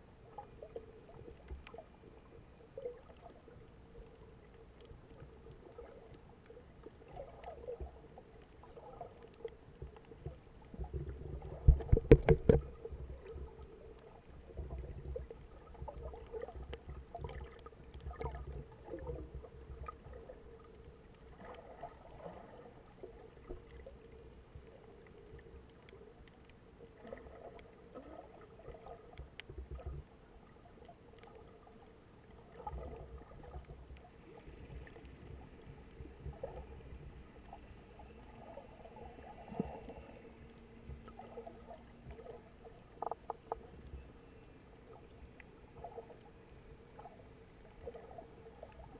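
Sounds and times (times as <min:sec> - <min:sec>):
faint steady hum: 0:00.0 - 0:48.9
muffled underwater rumble: 0:00.0 - 0:48.9
small clicks: 0:01.3 - 0:01.8.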